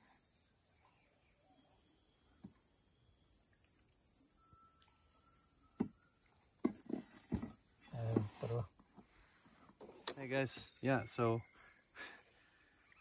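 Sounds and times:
rainforest insects buzzing: 0:00.0 - 0:13.0.

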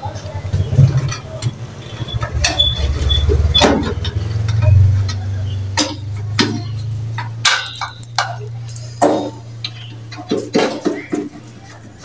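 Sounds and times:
steady low hum: 0:01.2 - 0:10.1.

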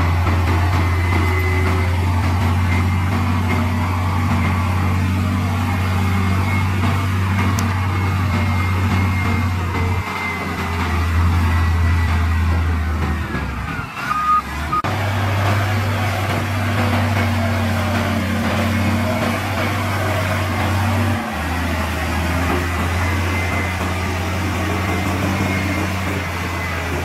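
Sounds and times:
heavy diesel engine droning: 0:00.0 - 0:27.0
short high beeps: 0:13.7 - 0:14.9.

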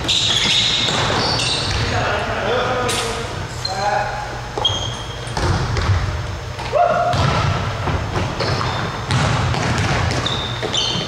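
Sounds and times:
sneaker squeaks: 0:00.0 - 0:02.1, 0:02.9 - 0:06.0, 0:08.0 - 0:11.0
basketball bouncing on hardwood: 0:05.4 - 0:06.1, 0:07.1 - 0:11.0.

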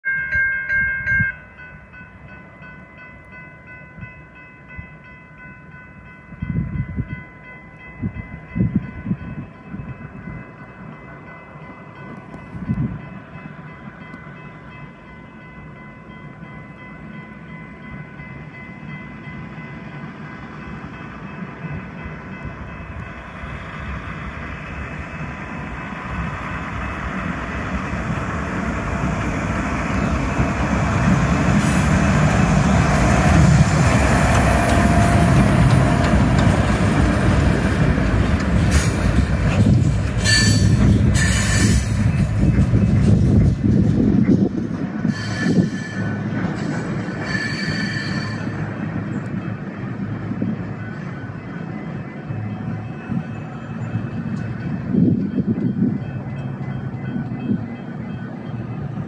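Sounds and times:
crossing warning bell ringing: 0:00.0 - 0:59.0
truck engine and rolling wheels: 0:20.0 - 0:45.1.

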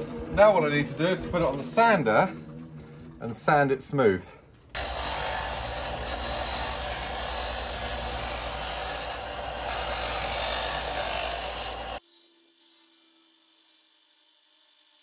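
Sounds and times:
disc sander grinding wood: 0:04.8 - 0:12.0.

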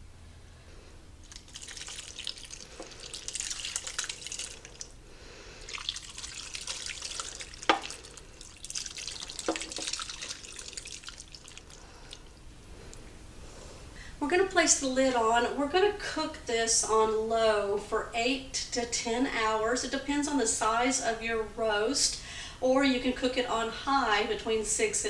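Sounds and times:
thick liquid pouring and splashing: 0:01.2 - 0:05.0, 0:05.6 - 0:12.4.

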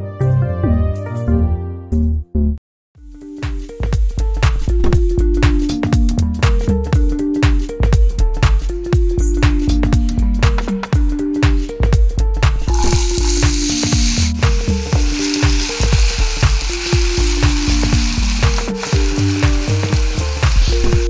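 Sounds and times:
background music with steady beat: 0:00.0 - 0:21.0
potatoes sizzling in hot oil: 0:12.7 - 0:21.0.

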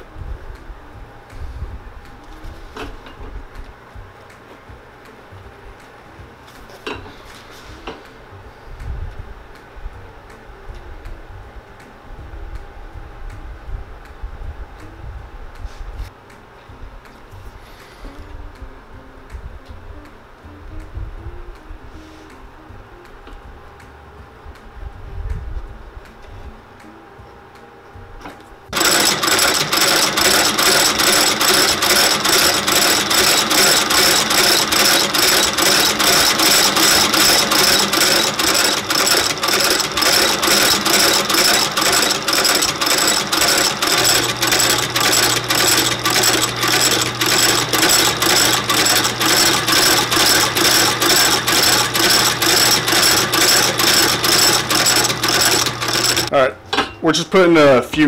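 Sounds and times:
stitching machine clacking: 0:28.7 - 0:56.4.

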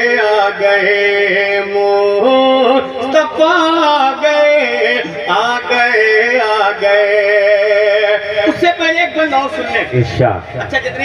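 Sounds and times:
man singing melismatic melody: 0:00.0 - 0:08.7.

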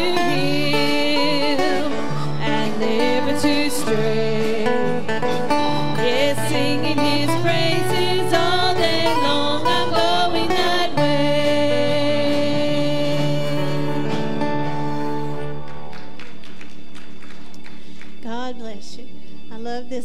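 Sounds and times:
woman singing: 0:00.0 - 0:14.5, 0:18.2 - 0:20.0
electric bass: 0:00.0 - 0:16.5
acoustic guitar: 0:00.0 - 0:17.0.

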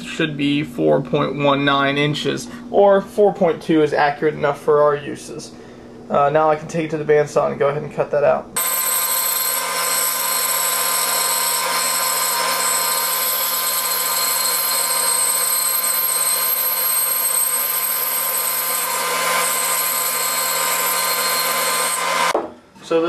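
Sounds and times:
bandsaw cutting wood: 0:08.6 - 0:22.4.

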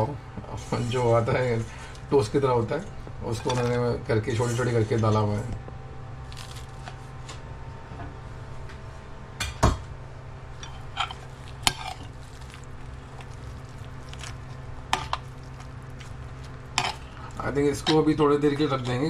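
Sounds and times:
steady low hum: 0:00.0 - 0:19.0
spoon clinking and scraping plate: 0:10.6 - 0:12.1, 0:16.8 - 0:17.2.

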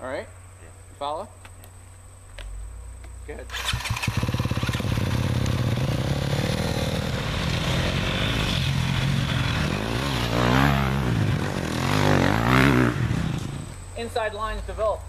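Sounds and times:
dirt bike engines revving: 0:03.4 - 0:14.8.

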